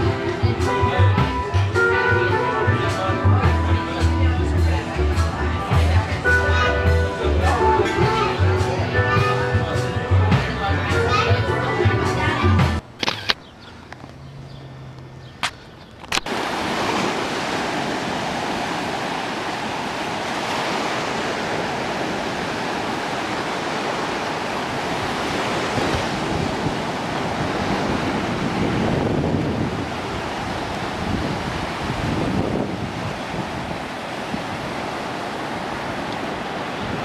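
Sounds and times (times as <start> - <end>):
small waves breaking on sand: 16.2 - 37.0
wind on microphone: 16.3 - 37.0.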